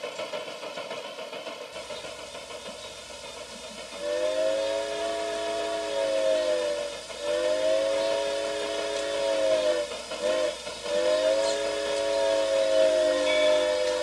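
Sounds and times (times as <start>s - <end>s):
steam locomotive chime whistle: 4.0s - 14.0s.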